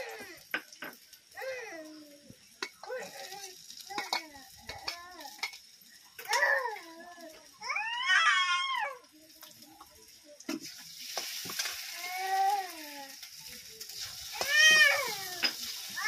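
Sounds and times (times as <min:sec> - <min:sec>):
vegetables sizzling in a wok: 0:00.0 - 0:16.0.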